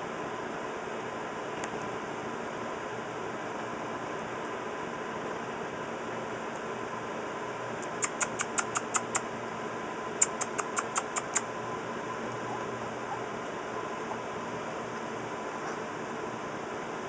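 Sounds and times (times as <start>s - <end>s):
puppies squeaking: 7.8s - 9.2s, 10.2s - 11.5s, 12.4s - 13.3s.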